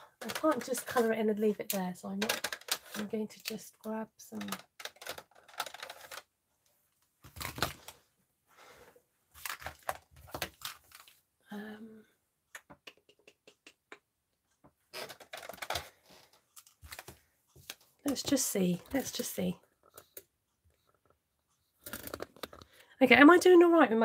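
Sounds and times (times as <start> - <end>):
rustling and plastic clatter: 0.0 - 8.1, 9.3 - 11.2, 14.9 - 20.2, 21.8 - 22.8.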